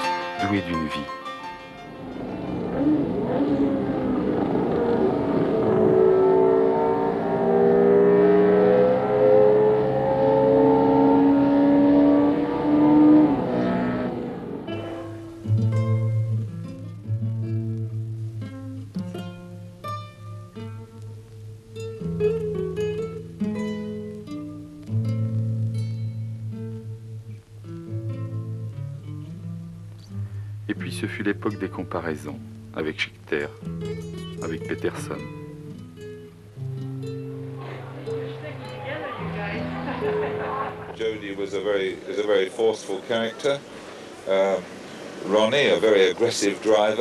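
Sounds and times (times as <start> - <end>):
plucked acoustic guitar: 0.0 - 5.9, 13.4 - 43.9
race car engine revving through gears: 1.9 - 15.4.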